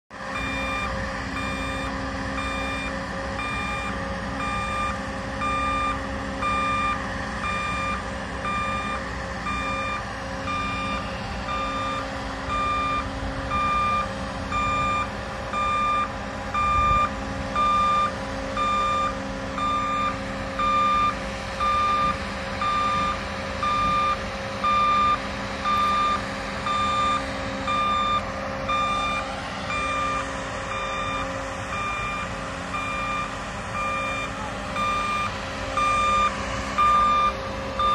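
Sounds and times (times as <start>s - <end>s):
warning alarm beeping: 0.3s - 37.9s.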